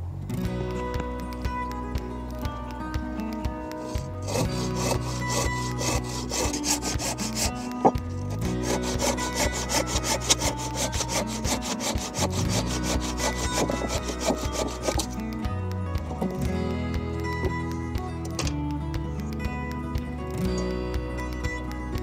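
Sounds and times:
background music: 0.0 - 22.0
handsaw cutting wood: 3.9 - 15.2.

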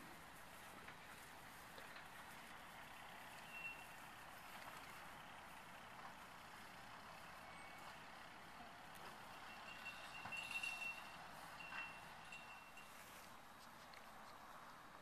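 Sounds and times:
faint outdoor background noise: 0.0 - 15.0
faint high beeps: 3.4 - 4.1, 9.3 - 13.2.

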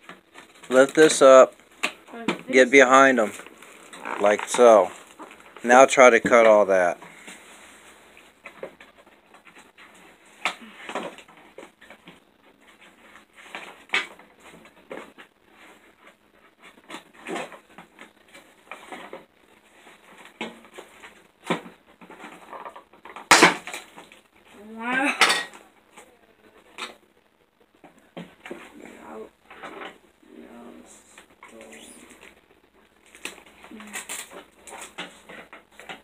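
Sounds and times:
plastic packaging crinkling: 2.8 - 5.7, 31.4 - 36.0.

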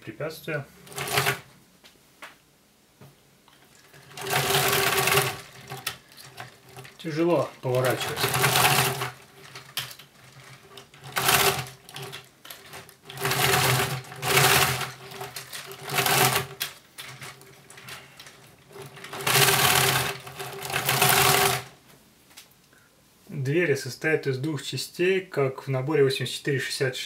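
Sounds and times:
plastic toy rattling on tabletop: 0.8 - 1.5, 3.7 - 21.8.

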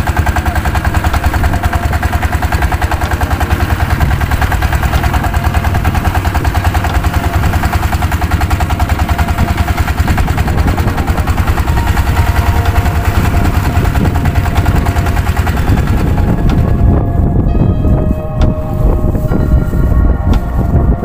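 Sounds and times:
boat engine droning: 0.0 - 21.0.

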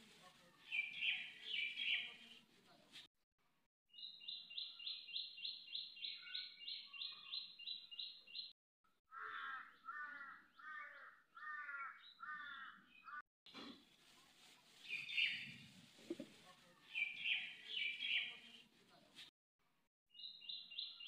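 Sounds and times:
lower falling bird calls: 14.8 - 18.4.

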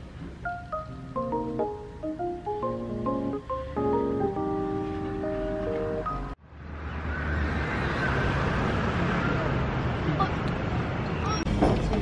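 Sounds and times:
instrumental background music: 0.4 - 6.4.

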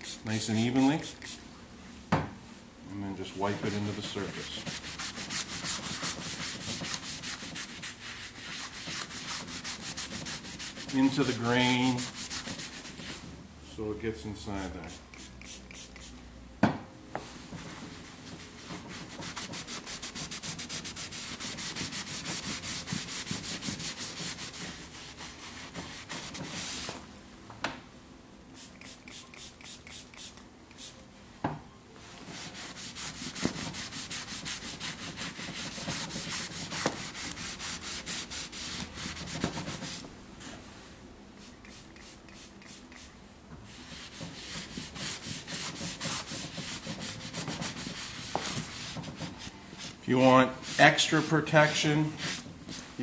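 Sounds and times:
foam sponge rubbing on leather: 3.5 - 13.2, 17.9 - 27.0, 32.4 - 40.0, 43.7 - 50.0.

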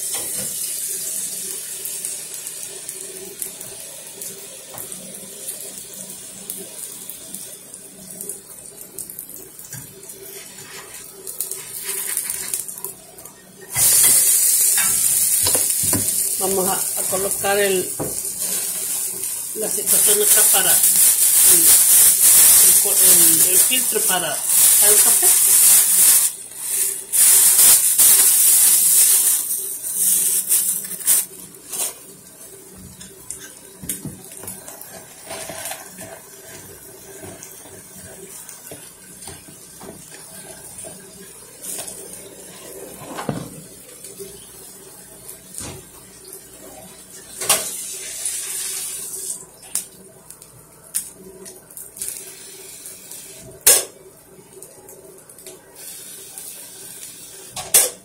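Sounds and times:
steady hiss: 13.8 - 32.1.

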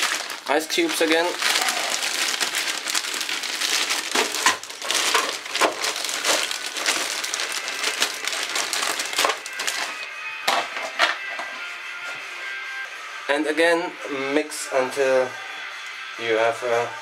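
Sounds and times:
ice cubes cracking and clicking: 0.0 - 10.0
plastic bag crinkling: 0.0 - 10.1.

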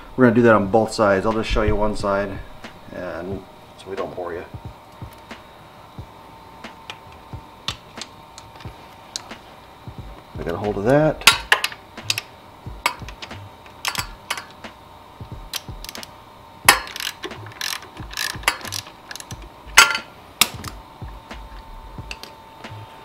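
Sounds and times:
hand ratchet clicking: 10.1 - 14.7, 15.3 - 20.8, 21.4 - 22.4.

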